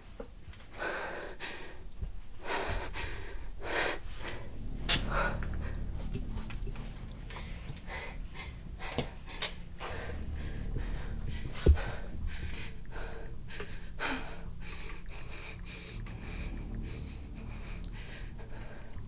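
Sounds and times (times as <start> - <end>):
woman breathing heavily and gasping: 0.7 - 6.3, 7.2 - 19.0
low thump: 10.0 - 12.8.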